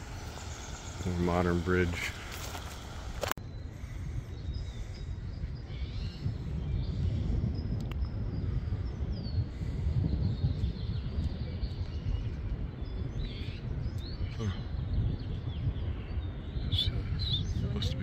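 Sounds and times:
birds chirping faintly: 0.0 - 18.0.

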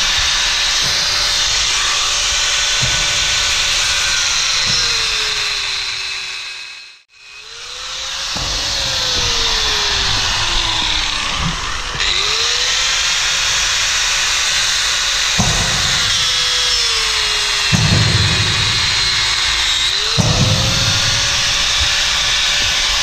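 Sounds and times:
angle grinder cutting metal: 0.0 - 23.0.

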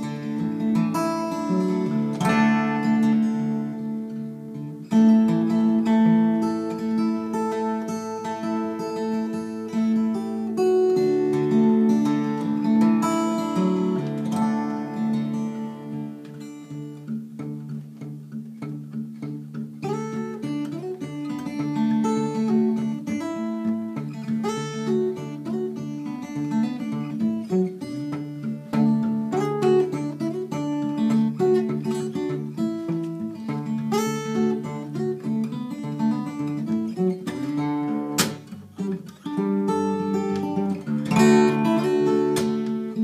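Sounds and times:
fingerstyle acoustic guitar: 0.0 - 43.0.

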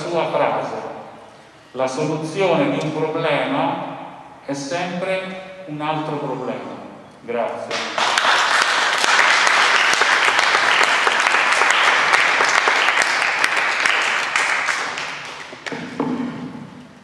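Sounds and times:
audience applauding: 7.7 - 15.8.

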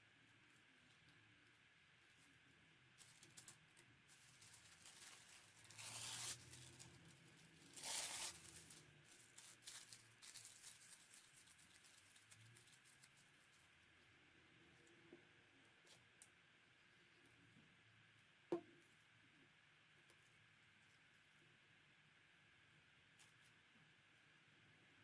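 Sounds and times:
paper crinkling and rustling: 3.0 - 13.7
paper tearing: 4.2 - 8.8.

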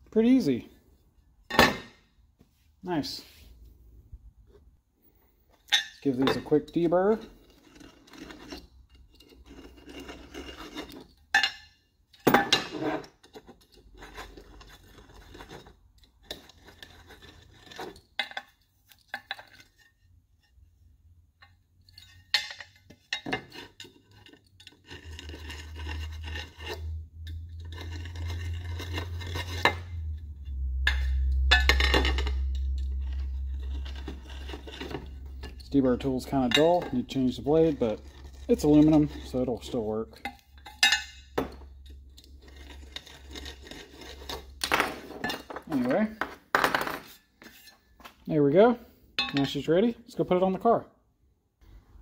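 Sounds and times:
deburring tool scraping metal: 5.7 - 11.5, 22.9 - 46.1
metal part clinking and knocking: 21.4 - 24.8, 30.8 - 37.6, 40.2 - 42.3
low hum: 25.0 - 45.7.

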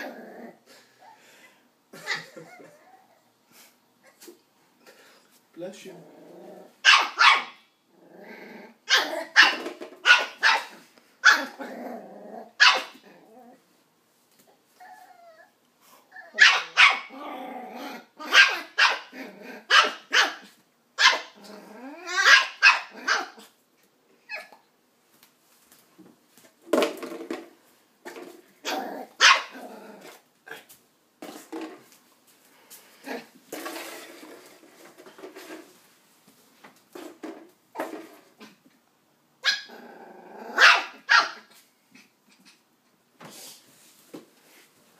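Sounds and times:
puppy barking: 6.8 - 7.6, 8.9 - 11.5, 12.6 - 13.0, 16.3 - 17.1, 18.2 - 21.4, 22.1 - 23.4, 28.6 - 29.6, 40.6 - 41.5.

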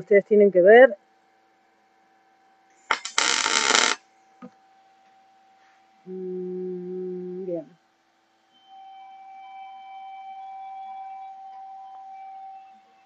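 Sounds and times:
faint electrical hum: 0.0 - 13.0
steady electronic tone: 2.9 - 4.0.

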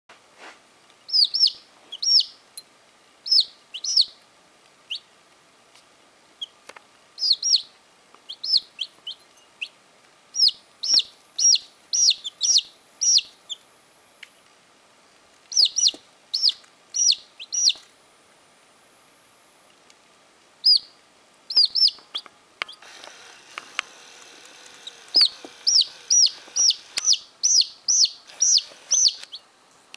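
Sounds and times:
baby chickens peeping: 1.1 - 2.4, 3.2 - 4.2, 4.8 - 5.1, 6.4 - 6.6, 7.2 - 9.8, 10.4 - 13.6, 15.5 - 17.9, 20.6 - 29.5.

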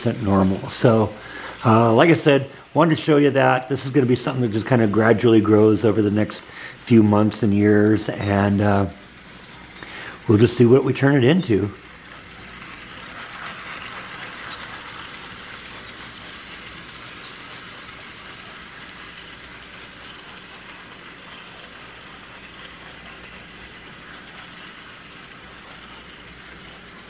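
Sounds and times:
model train motor whirring: 0.0 - 27.0
wheels rolling on rails: 0.0 - 27.0.

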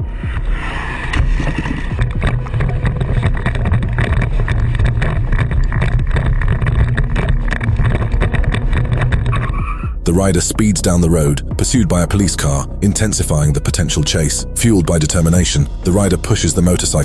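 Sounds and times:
dirt bike engine running hard: 1.1 - 9.9.

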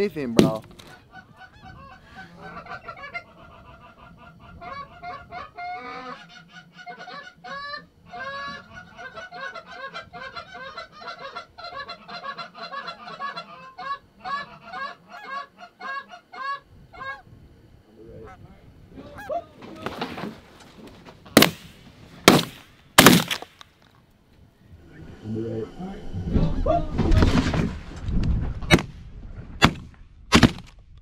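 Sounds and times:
geese honking: 0.8 - 17.3, 18.1 - 20.2.

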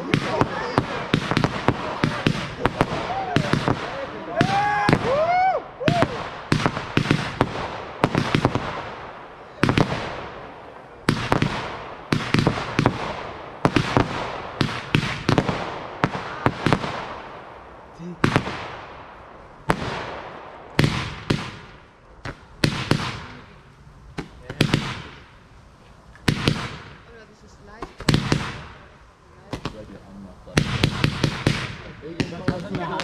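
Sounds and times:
fireworks banging: 0.0 - 33.0.

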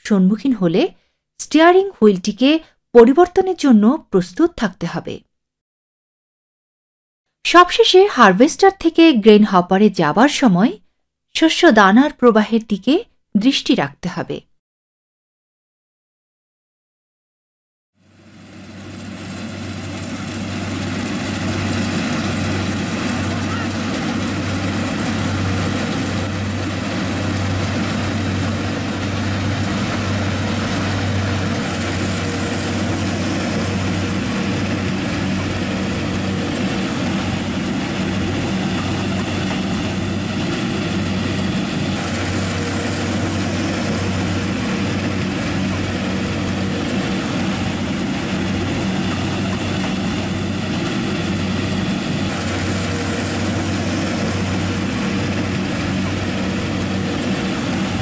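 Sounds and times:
combine harvester droning: 18.0 - 58.0.

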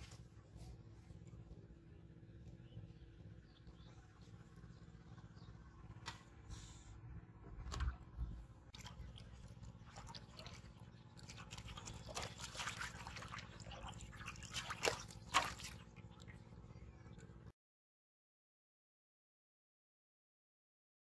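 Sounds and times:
water splashing in a metal basin: 8.6 - 16.6.

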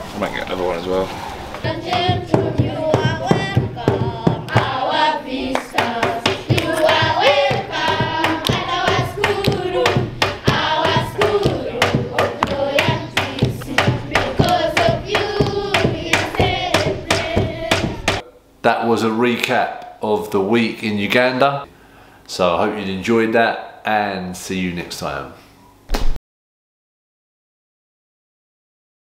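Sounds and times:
children singing together: 1.6 - 18.2
clapping a steady beat: 1.7 - 18.2.

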